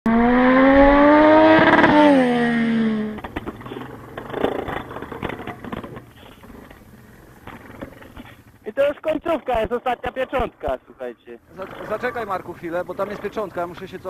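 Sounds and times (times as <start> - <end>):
loud engine revving: 0.1 - 3.8
quad bike engine running: 0.1 - 8.7, 11.5 - 14.0
clattering clicks and knocks: 3.1 - 10.6.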